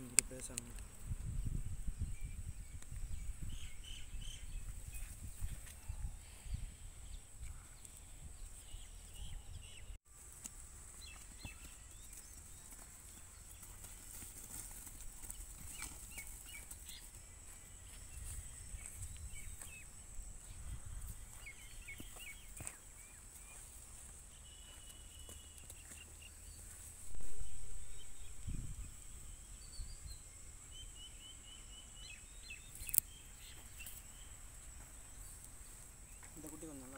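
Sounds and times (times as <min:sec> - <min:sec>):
wind rumble on microphone: 0:00.8 - 0:10.0, 0:18.1 - 0:21.9, 0:27.0 - 0:30.4
faint chirps: 0:15.1 - 0:36.9.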